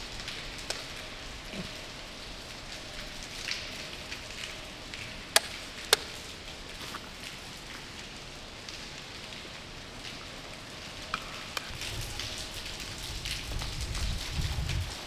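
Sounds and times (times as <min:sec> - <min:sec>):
footsteps crunching over rubble: 0:06.7 - 0:07.4.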